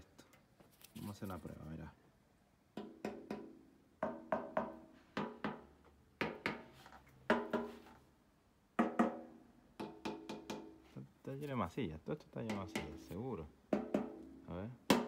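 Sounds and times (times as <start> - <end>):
hammer tapping on metal tank: 2.8 - 5.6, 8.8 - 9.2, 9.8 - 10.7, 12.4 - 13.0, 13.7 - 14.2.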